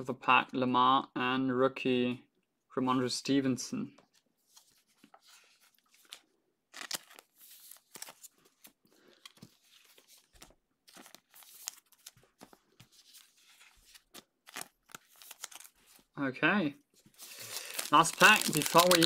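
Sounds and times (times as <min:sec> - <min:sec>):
plastic sleeves crinkling: 0:04.5 - 0:16.1, 0:17.0 - 0:19.0.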